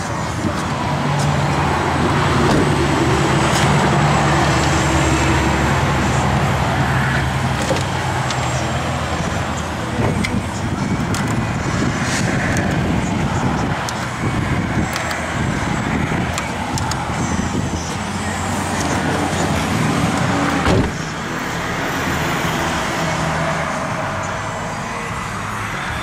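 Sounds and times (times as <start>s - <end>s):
sharp thump: 20.6s - 21.0s.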